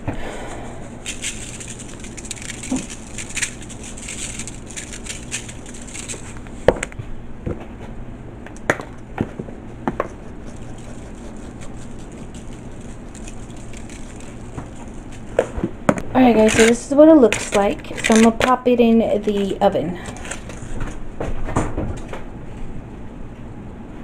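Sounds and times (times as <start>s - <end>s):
low steady hum: 0.0s - 24.0s
crackling foil rustle: 0.1s - 6.8s, 10.1s - 15.6s, 16.2s - 21.0s.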